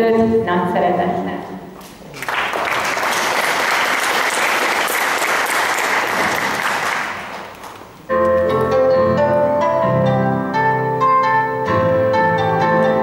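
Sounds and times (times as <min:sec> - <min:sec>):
audience applauding: 0:02.1 - 0:08.0
slow lyrical song with piano: 0:08.1 - 0:13.0.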